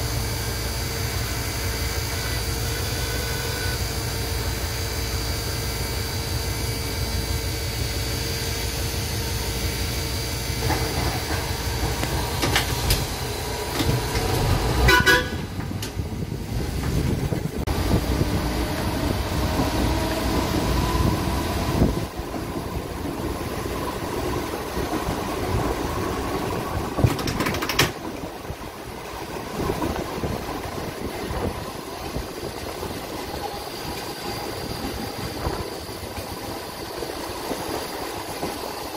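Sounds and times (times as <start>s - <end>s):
streetcar motor and wheels: 0.0s - 38.9s
short warning signal: 2.1s - 3.9s.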